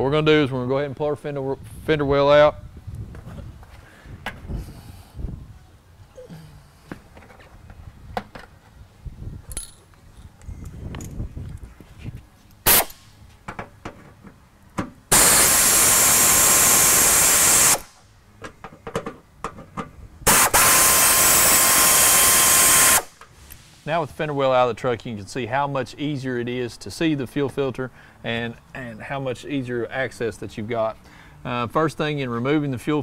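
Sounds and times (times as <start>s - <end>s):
air ratchet hissing and whining: 12.7s - 13.0s, 15.1s - 18.0s, 20.3s - 23.7s.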